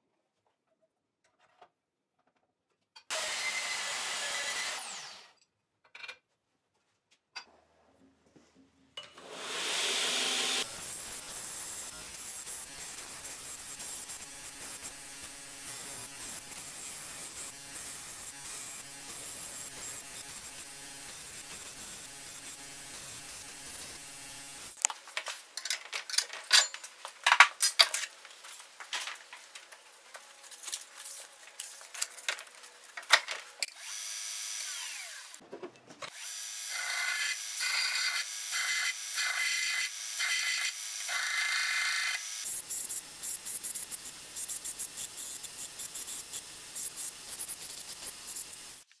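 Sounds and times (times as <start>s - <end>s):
belt grinder grinding steel: 3.1s - 5.4s, 9.2s - 24.8s, 33.6s - 35.4s.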